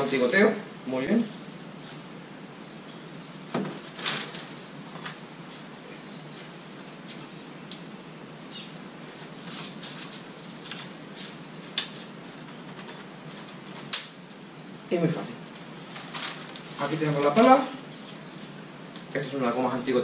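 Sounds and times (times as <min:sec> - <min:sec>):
canaries chirping: 0:04.3 - 0:07.5, 0:11.2 - 0:11.7, 0:12.3 - 0:15.0.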